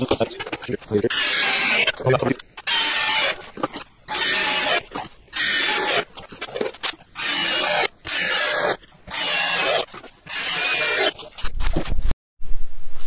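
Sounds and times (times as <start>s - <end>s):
power drill driving screws: 2.6s - 11.2s.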